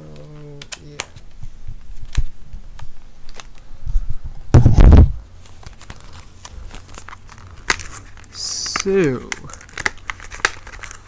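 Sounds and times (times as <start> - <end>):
microphone handling clicks and rustles: 1.0 - 8.1.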